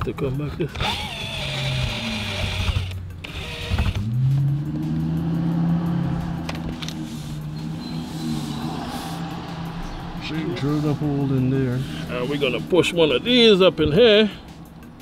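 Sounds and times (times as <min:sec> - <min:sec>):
drill motor whine: 0:00.8 - 0:04.0.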